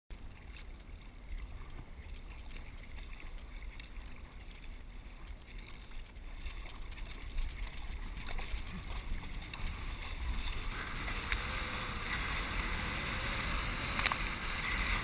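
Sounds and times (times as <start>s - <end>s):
wind rumble on microphone: 0.1s - 15.0s
paddle splashing: 0.2s - 15.0s
water rushing along hull: 0.2s - 15.0s.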